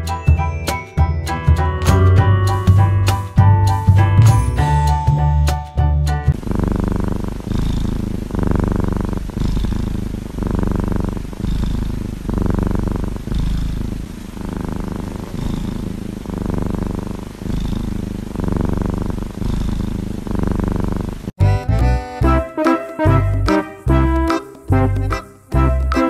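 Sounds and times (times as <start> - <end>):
kitten purring: 6.3 - 21.4.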